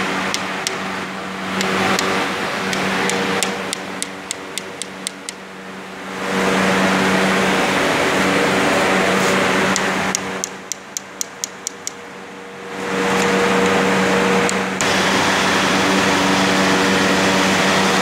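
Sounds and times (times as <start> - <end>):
workshop machinery hum: 0.0 - 18.0
light evenly spaced ticks: 2.7 - 5.4, 9.7 - 12.0.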